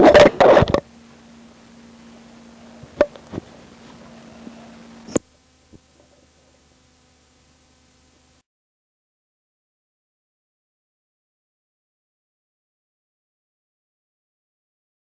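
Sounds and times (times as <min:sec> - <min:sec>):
cassette hum and hiss: 0:00.0 - 0:08.4.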